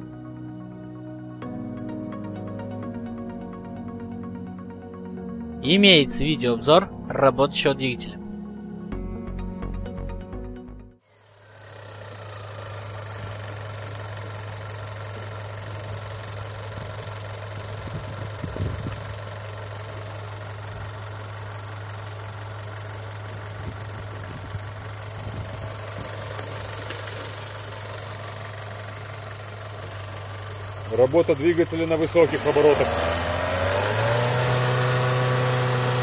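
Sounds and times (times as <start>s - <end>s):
car engine idling: 5.9s - 8.2s, 11.1s - 36.0s.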